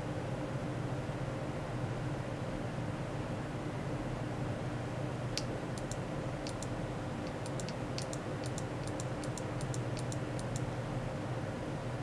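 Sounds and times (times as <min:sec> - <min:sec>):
steady low hum: 0:00.0 - 0:12.0
mouse button clicks: 0:05.4 - 0:06.7, 0:07.3 - 0:10.6.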